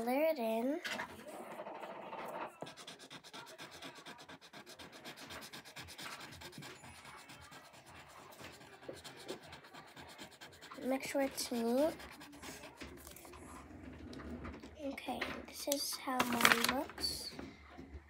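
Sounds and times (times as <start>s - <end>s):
colouring tool rubbing on paper: 1.5s - 13.2s
paper rustling: 16.0s - 17.3s.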